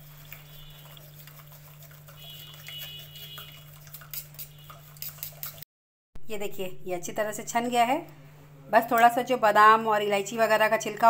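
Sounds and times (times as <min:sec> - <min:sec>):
liquid trickling: 0:00.0 - 0:05.6
spoon scraping metal strainer: 0:00.0 - 0:05.6.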